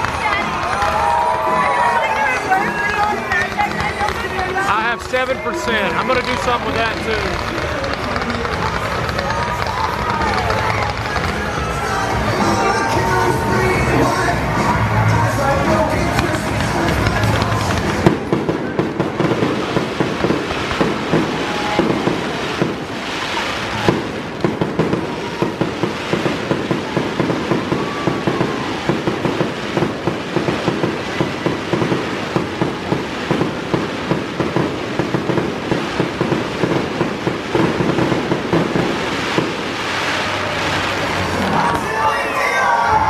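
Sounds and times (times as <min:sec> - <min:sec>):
firework shells bursting: 0:02.3 - 0:12.6, 0:15.9 - 0:42.0
sharp pops and crackles: 0:02.8 - 0:11.6.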